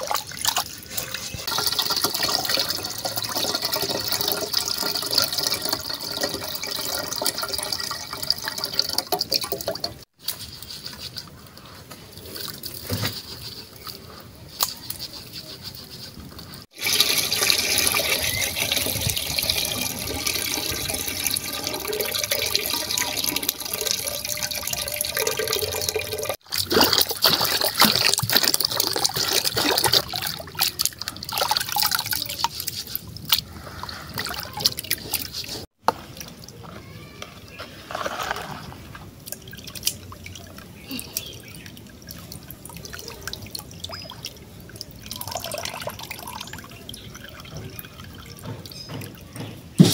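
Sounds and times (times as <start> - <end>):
water pouring into metal pot: 0.0 - 10.1, 16.7 - 32.3, 41.2 - 48.3
wet seeds stirred by hand: 37.3 - 40.1.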